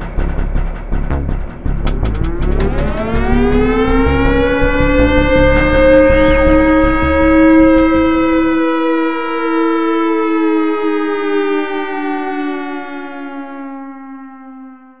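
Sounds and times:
low rumble: 0.0 - 8.6
siren tone sliding down: 1.2 - 15.0.

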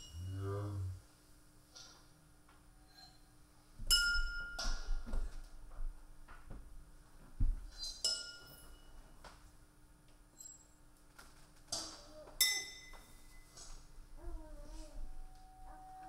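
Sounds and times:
glassy metallic clinks: 2.8 - 3.3, 7.8 - 9.0, 10.4 - 10.8, 12.4 - 13.6
short wavering tone: 14.8 - 16.0.

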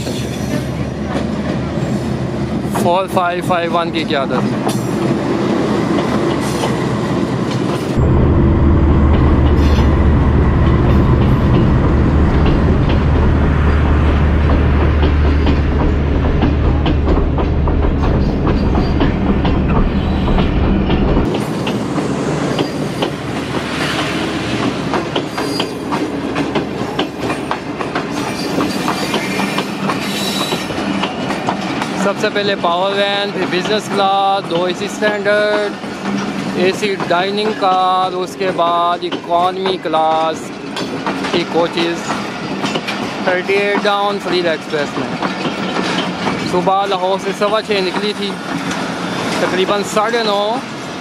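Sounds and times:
wheels clickety-clack on rail joints: 0.0 - 8.0, 9.1 - 51.0
train rolling past: 0.0 - 51.0
heavy low rumble: 7.9 - 21.4.

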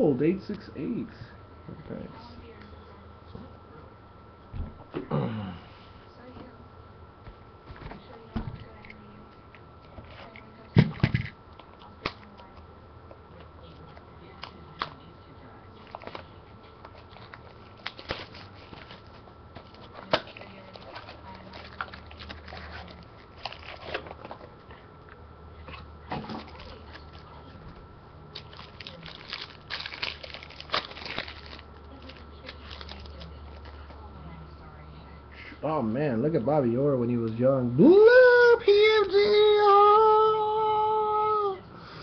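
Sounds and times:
cardboard and wrapper crinkling: 16.9 - 24.5, 28.3 - 33.8.

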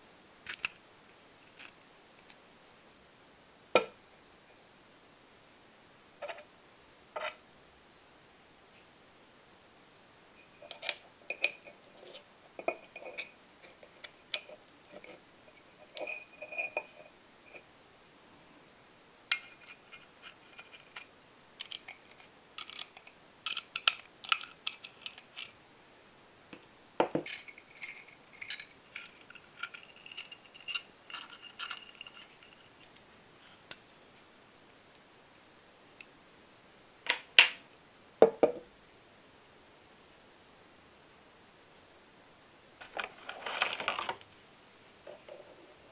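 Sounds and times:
small metal parts clinking: 19.3 - 25.6, 27.2 - 33.0.

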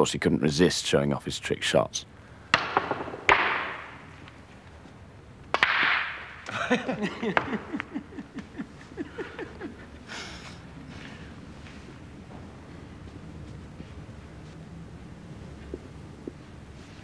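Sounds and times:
balls clattering: 2.5 - 4.4, 5.4 - 8.6
snooker balls cracking together: 2.5 - 8.6.

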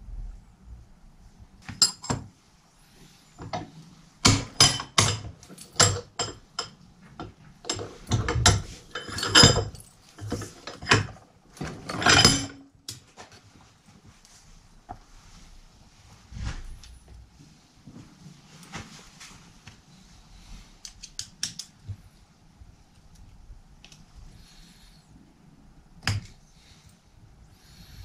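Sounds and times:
metal parts clinking: 4.4 - 6.7, 7.7 - 11.2, 11.8 - 12.7.

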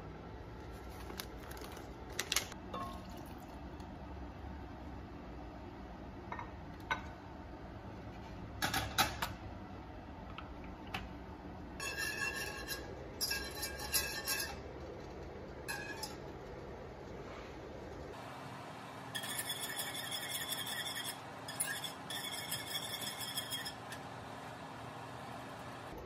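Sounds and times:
whisk scraping in saucepan: 11.8 - 15.0, 15.6 - 16.3, 19.2 - 24.0.

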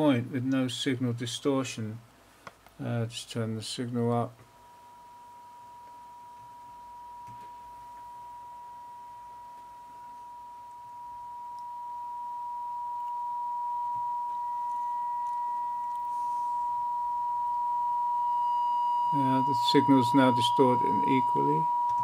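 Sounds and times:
sine-wave test tone: 4.2 - 22.0
faint higher tone: 4.6 - 22.0.

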